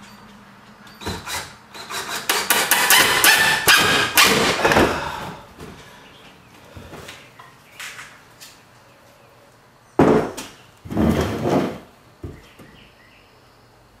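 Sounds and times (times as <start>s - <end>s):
wood knocking on wood: 10.0s - 12.7s.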